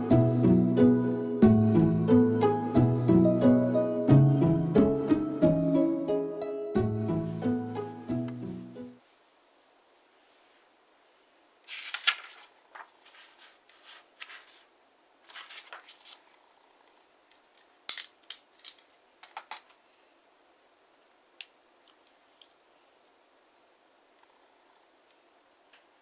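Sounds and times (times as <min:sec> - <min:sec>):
paper rustling and crinkling: 0:11.6 - 0:16.4.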